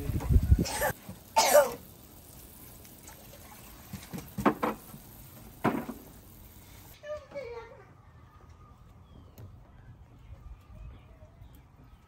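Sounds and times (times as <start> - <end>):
person coughing: 0.6 - 1.8.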